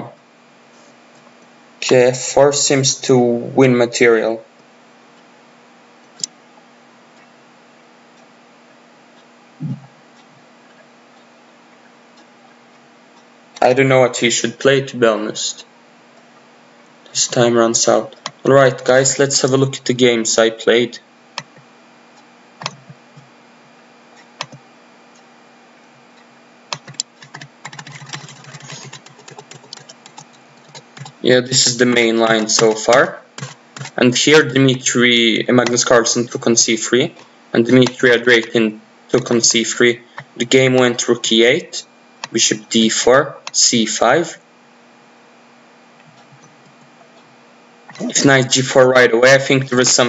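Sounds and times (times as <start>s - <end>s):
faint clock-like ticking: 8.0s - 13.7s
computer keyboard typing: 22.6s - 23.3s, 24.4s - 24.6s, 26.7s - 34.1s.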